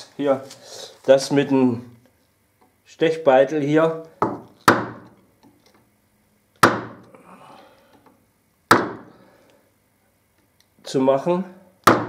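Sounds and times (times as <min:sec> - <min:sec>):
chisel knocks into wood: 0:04.2 - 0:05.2, 0:06.6 - 0:07.0, 0:08.7 - 0:09.1.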